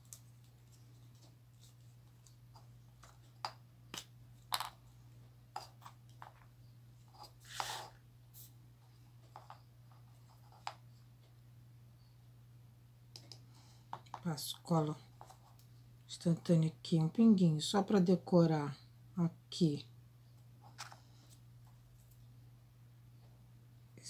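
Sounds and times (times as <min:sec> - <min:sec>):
scrape or rustle: 0:07.2 - 0:08.5.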